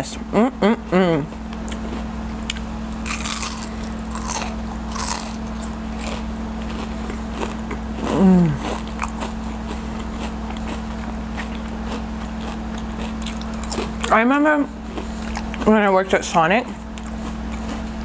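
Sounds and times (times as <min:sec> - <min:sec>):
person humming mmm: 0:00.3 - 0:01.3, 0:08.0 - 0:08.8
biting crispy onion ring: 0:01.4 - 0:14.2.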